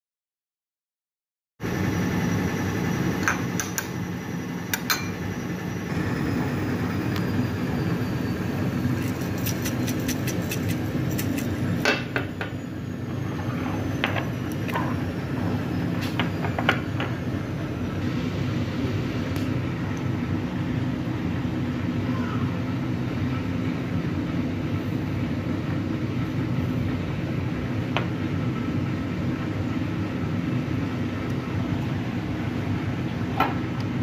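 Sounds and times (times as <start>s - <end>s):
metal spoon clinking on glass bowl: 4.8s - 5.2s.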